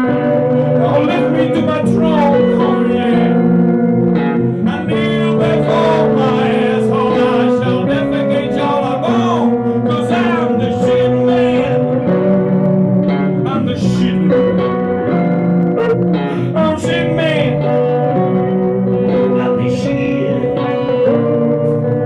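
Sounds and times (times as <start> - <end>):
blues electric guitar: 0.0 - 22.0.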